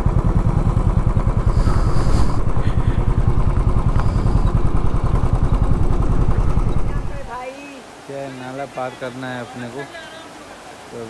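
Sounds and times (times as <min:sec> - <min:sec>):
motorcycle engine running: 0:00.0 - 0:07.5.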